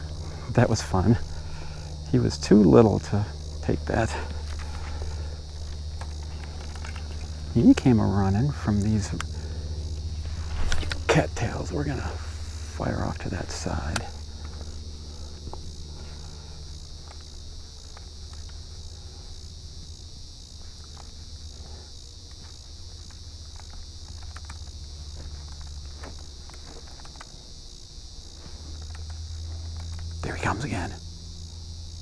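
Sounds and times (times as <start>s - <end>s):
constant low hum: 0.0s - 32.0s
crickets trilling: 0.0s - 32.0s
faint ticks: 13.5s - 19.4s, 20.5s - 30.5s.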